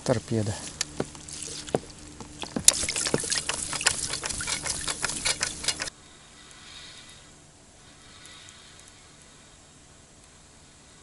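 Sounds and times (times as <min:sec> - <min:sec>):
water splashing off a net: 0:01.2 - 0:05.9.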